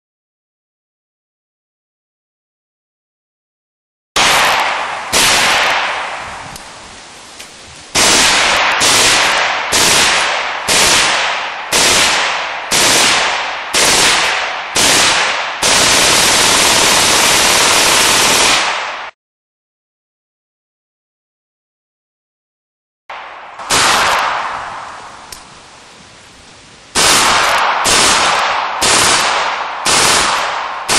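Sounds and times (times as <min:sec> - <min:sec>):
automatic gunfire bursts: 0:04.2 - 0:06.0, 0:08.0 - 0:19.1, 0:23.6 - 0:24.6, 0:27.0 - 0:30.9.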